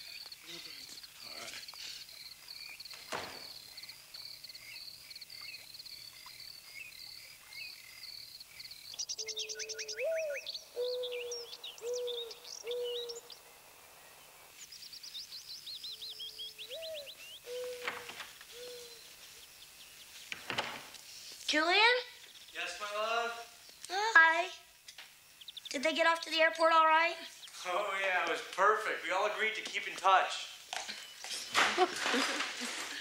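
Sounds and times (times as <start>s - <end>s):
birds twittering: 0.0s - 32.3s
high bird chirps: 8.9s - 13.4s
low cooing: 9.3s - 13.2s, 16.7s - 19.0s.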